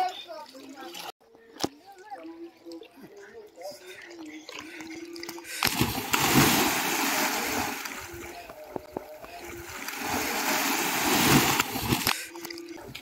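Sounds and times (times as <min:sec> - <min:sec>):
heavy water splashing: 0:05.4 - 0:13.0.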